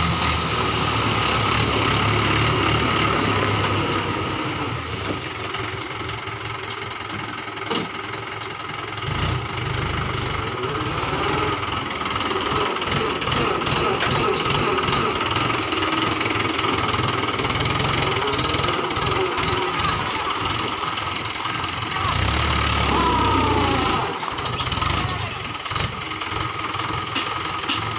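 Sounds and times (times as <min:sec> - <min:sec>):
tractor diesel engine running: 0:00.0 - 0:27.9
sharp clack: 0:27.1 - 0:27.9.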